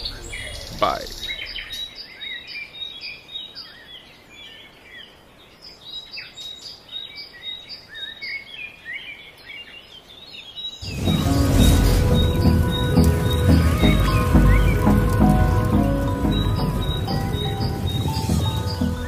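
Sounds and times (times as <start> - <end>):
birds chirping: 0.0 - 19.0
loud music: 10.9 - 19.0.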